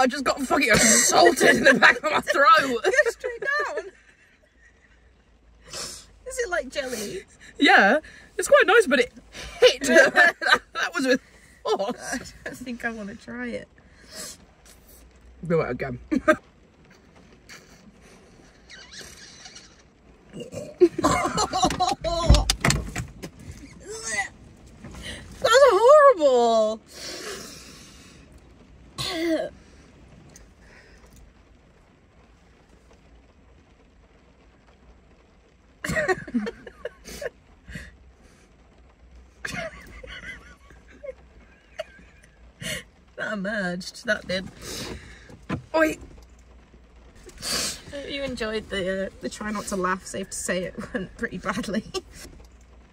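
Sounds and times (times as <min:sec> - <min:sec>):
person coughing and spluttering: 0:20.3 - 0:21.8, 0:29.0 - 0:29.5, 0:35.8 - 0:37.2.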